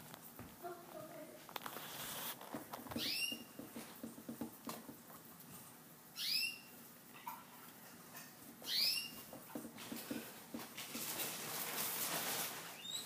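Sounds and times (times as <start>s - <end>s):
guinea pigs wheeking: 12.7s - 13.0s.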